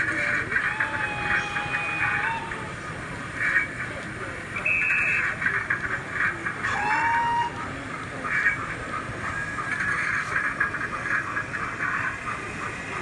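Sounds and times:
crowd hubbub: 0:00.0 - 0:13.0
whistle-like tone: 0:04.6 - 0:05.2.

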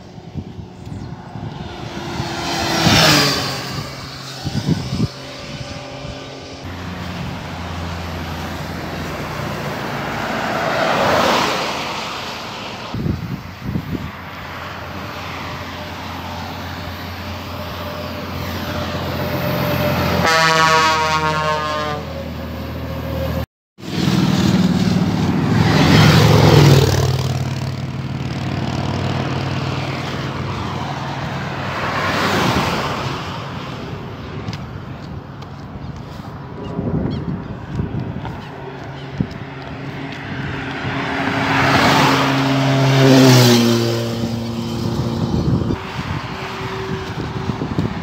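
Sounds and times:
highway traffic passing: 0:00.0 - 0:48.0
truck multi-tone air horn: 0:17.1 - 0:25.2, 0:42.2 - 0:47.8.

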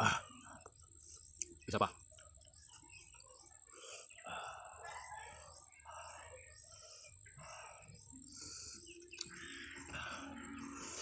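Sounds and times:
birds chirping: 0:00.0 - 0:11.0
high-pitched whine: 0:05.6 - 0:11.0.

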